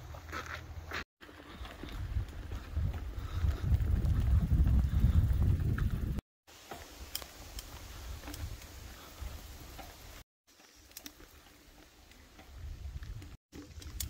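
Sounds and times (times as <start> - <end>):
bicycle rolling on dirt: 0.0 - 14.0
wind rumble on microphone: 1.5 - 6.2, 12.4 - 14.0.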